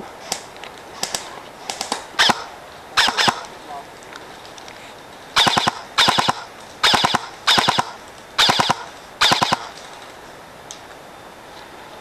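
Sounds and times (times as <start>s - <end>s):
airsoft rifle firing bursts: 1.0s - 3.5s, 5.4s - 9.8s.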